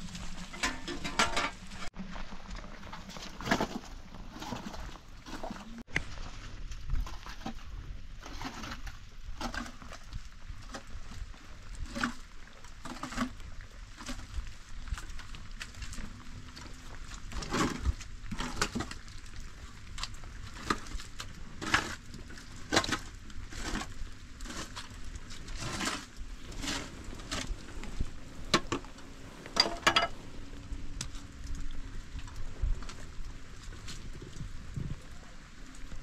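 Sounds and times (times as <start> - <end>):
rain patter: 7.7 - 36.0.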